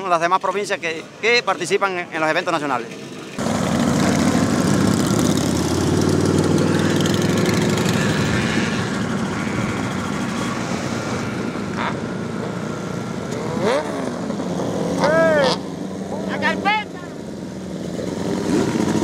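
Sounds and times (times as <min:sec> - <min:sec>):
motorcycles riding past: 0:02.9 - 0:19.0
motorcycle engine revving: 0:03.3 - 0:16.6, 0:17.2 - 0:19.0.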